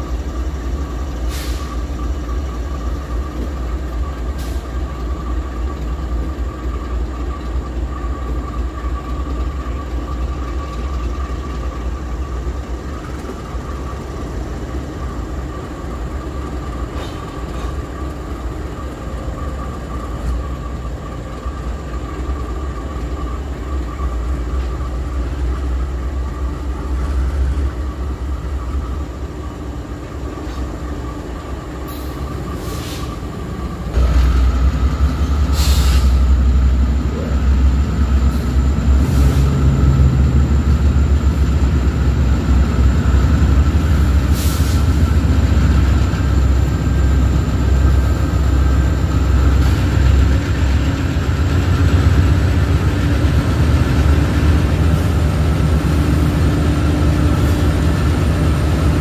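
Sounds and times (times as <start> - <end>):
locomotives idling: 0.0 - 59.0.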